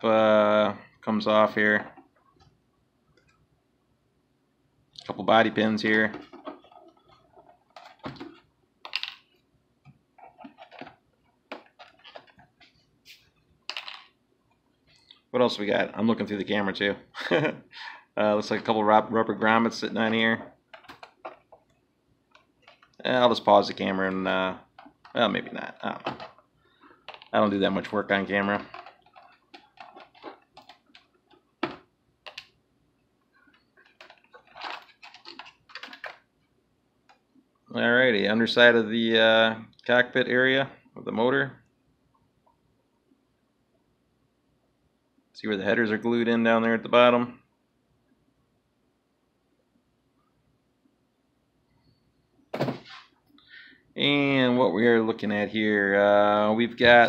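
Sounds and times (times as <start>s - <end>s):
rustling: 19.7s - 32.5s, 33.3s - 36.3s
plastic hatch clicks and clatters: 28.5s - 32.5s, 33.8s - 36.2s.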